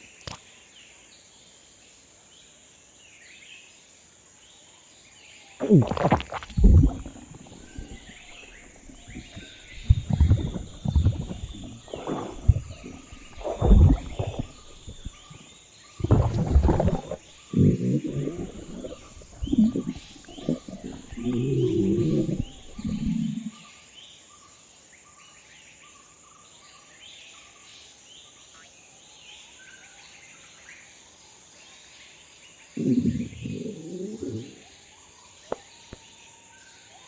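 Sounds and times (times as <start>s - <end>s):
stomach gurgling: 5.6s - 23.6s, 32.8s - 34.7s
birds chirping: 5.6s - 23.7s, 32.8s - 34.7s.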